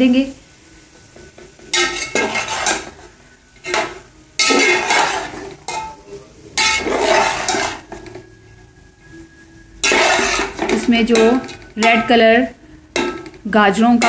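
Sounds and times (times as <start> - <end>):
metal spatula scraping metal pot: 1.6 - 6.0, 6.6 - 8.3, 9.8 - 14.0.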